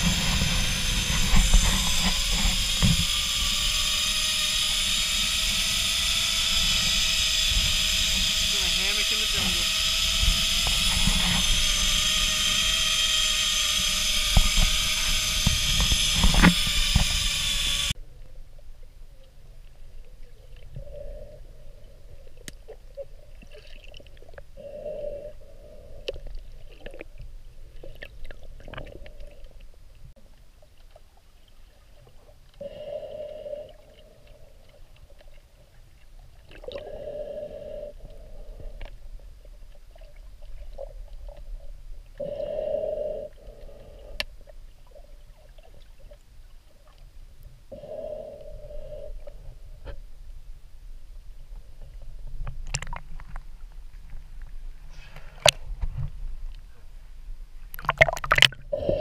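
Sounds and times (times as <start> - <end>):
trolley whine on cable: 0.0 - 18.0
sharp clicks: 6.6 - 18.0.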